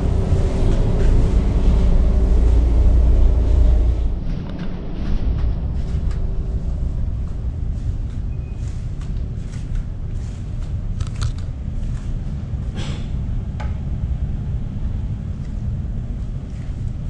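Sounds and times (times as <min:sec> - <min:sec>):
low rumble of ship machinery: 0:00.0 - 0:17.0.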